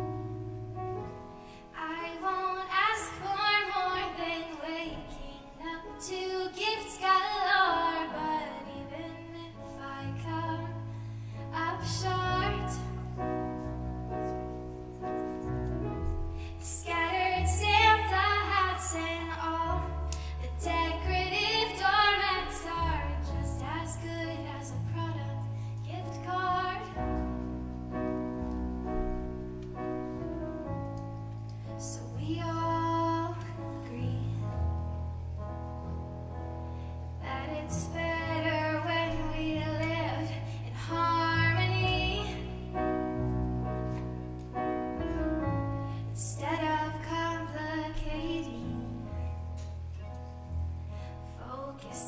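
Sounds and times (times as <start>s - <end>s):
piano chords on keyboard: 0.0s - 52.0s.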